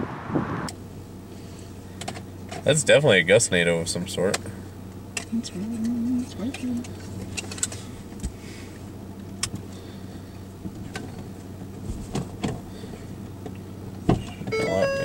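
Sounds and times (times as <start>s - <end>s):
low mechanical hum: 0.0s - 15.0s
electronic tone: 14.5s - 15.0s.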